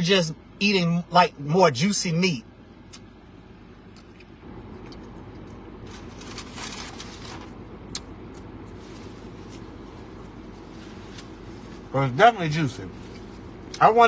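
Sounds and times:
car cabin hum: 0.0s - 14.0s.

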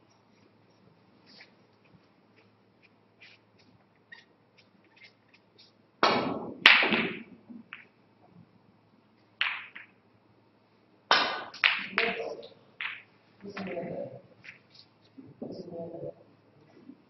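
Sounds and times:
snooker balls clicking: 1.7s - 8.4s, 9.2s - 10.0s, 11.1s - 14.7s
balls knocking off cushions: 6.0s - 7.9s
cue striking ball: 6.0s - 7.9s, 9.4s - 9.9s, 11.1s - 13.1s.

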